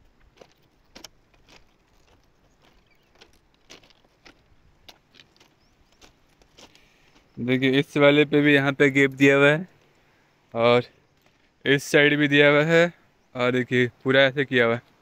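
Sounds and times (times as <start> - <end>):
footsteps on stone ballast: 0.0 - 8.0, 11.0 - 11.7.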